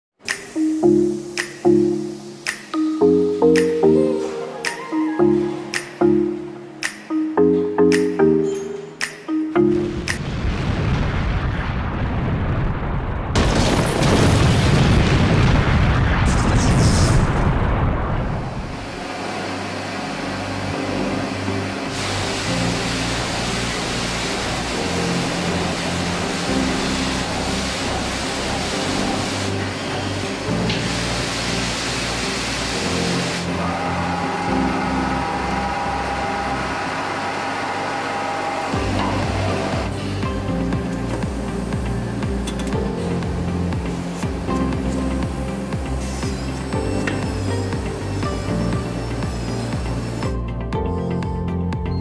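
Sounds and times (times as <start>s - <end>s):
machine whine: 13.4s - 51.2s
coolant spray hiss: 21.9s - 33.5s.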